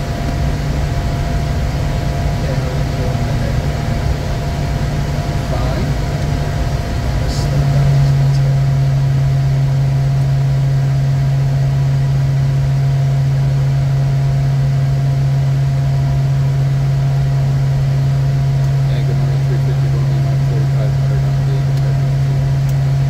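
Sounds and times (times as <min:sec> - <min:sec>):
high whine: 0:00.0 - 0:23.0
jet engine low hum: 0:00.0 - 0:23.0.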